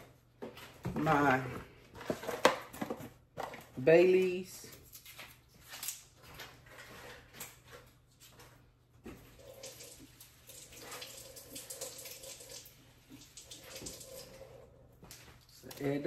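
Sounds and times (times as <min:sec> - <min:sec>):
gravy bubbling and popping: 0:09.1 - 0:14.8.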